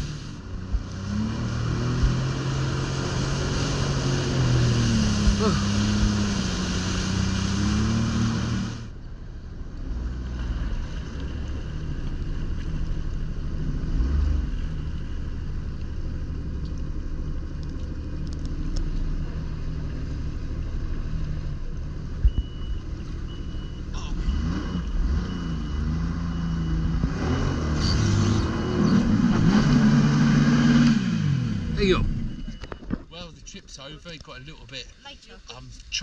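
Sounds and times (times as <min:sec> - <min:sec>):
wind: 0:00.0 - 0:36.0
rushing water: 0:00.8 - 0:08.9
jet ski engine: 0:01.5 - 0:08.9.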